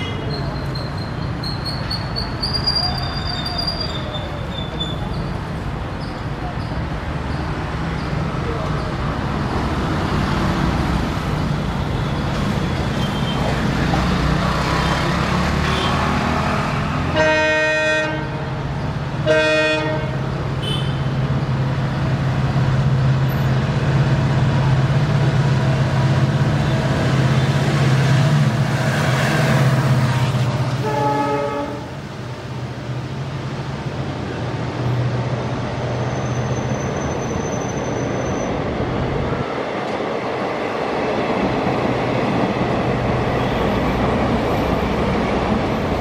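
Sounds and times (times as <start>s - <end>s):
diesel locomotive engine drone: 0.0s - 46.0s
passenger coaches rolling past: 0.0s - 46.0s
train horn blasts: 17.1s - 18.5s, 19.2s - 21.0s, 30.1s - 32.0s.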